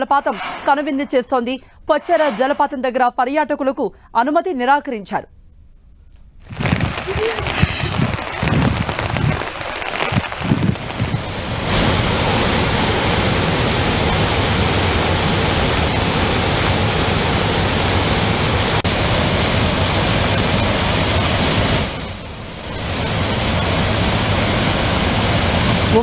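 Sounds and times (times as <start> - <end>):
floodwater pouring over waterfall: 6.5 - 26.0.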